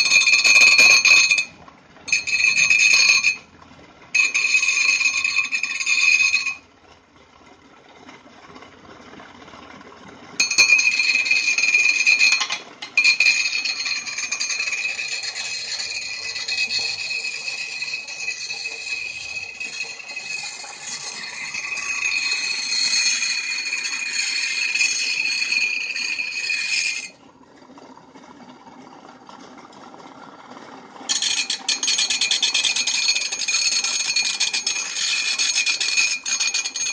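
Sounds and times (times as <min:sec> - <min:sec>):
blade screeching on grinding wheel: 0:00.0 - 0:03.4, 0:04.2 - 0:06.6, 0:10.4 - 0:27.2, 0:31.1 - 0:36.9.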